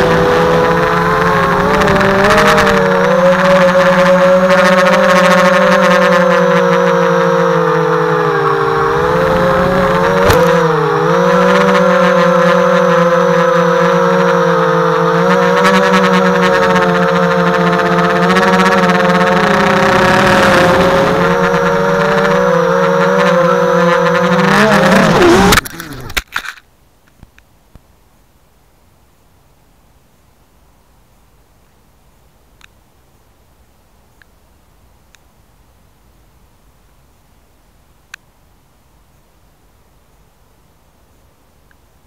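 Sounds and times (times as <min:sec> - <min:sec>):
quadcopter motors whining: 0:00.0 - 0:26.2.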